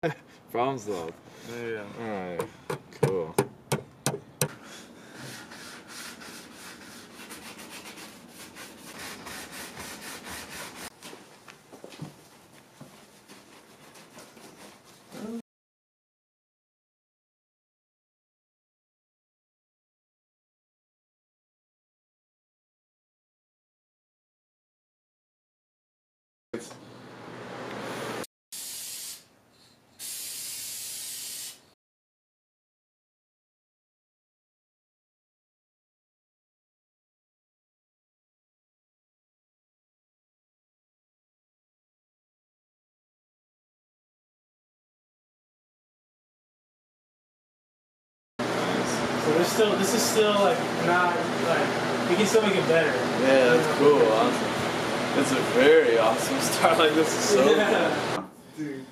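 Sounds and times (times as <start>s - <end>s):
sandpaper rubbing on car panel: 5.2s - 10.9s
spray can hissing: 28.6s - 29.3s, 30.0s - 31.8s.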